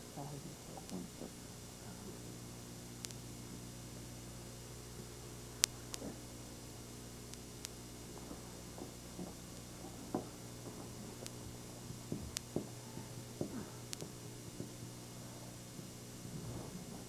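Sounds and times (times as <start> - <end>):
steady low hum: 0.0 - 17.0
faint soft taps and rustles: 8.2 - 15.0.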